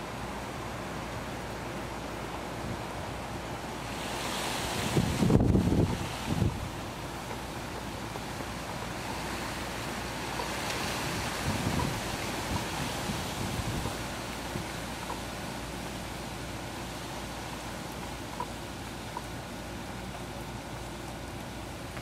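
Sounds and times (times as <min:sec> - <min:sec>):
rushing wind: 0:00.0 - 0:19.6
wind buffeting the microphone: 0:04.0 - 0:07.2, 0:10.2 - 0:14.8.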